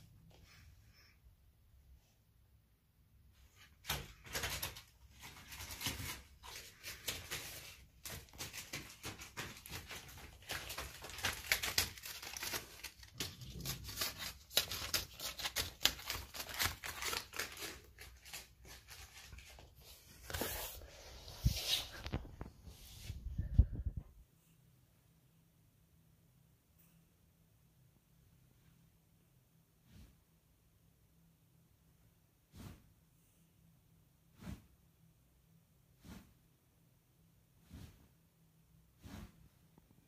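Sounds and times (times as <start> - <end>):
sticky paper crackling and peeling: 3.8 - 20.5.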